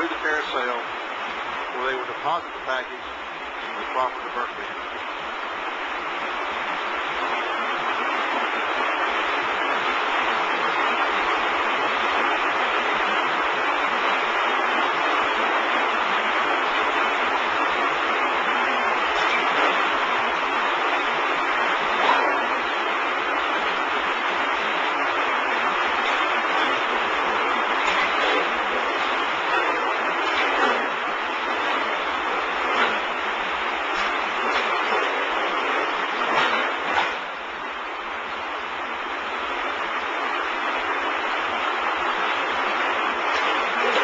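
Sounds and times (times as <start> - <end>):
conveyor machine rushing: 0.0 - 44.0
loud clatters: 14.9 - 38.2, 42.4 - 44.0.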